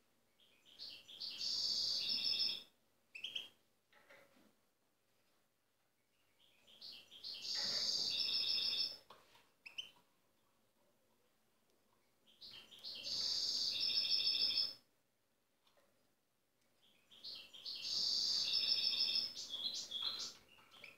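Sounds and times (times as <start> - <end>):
goldfinch singing: 12.3 - 14.8, 16.9 - 20.9.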